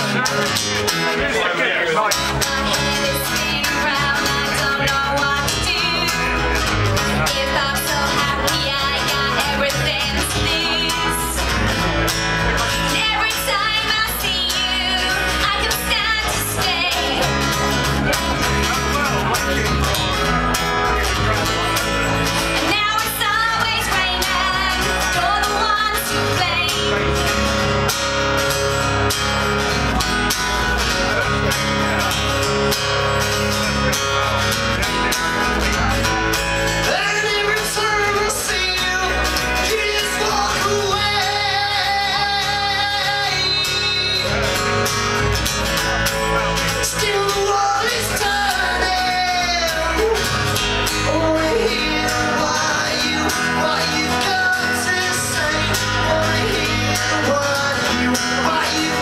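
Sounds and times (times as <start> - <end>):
person singing: 0.0 - 20.6, 22.6 - 27.6, 36.8 - 45.1, 46.1 - 59.0
bass guitar: 0.0 - 59.0
strummed acoustic guitar: 0.0 - 59.0.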